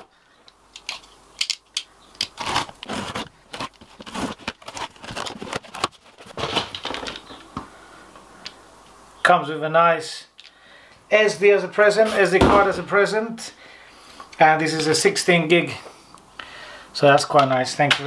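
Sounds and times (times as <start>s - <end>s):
tape tearing and rustling: 0.8s - 7.4s
box cutter slitting tape: 2.2s - 5.9s.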